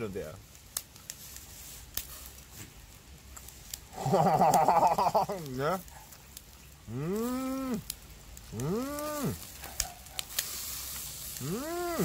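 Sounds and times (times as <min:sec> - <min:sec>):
fish sizzling on a grill: 0:00.0 - 0:12.0
man humming: 0:06.9 - 0:07.9, 0:08.5 - 0:09.4, 0:11.4 - 0:12.0.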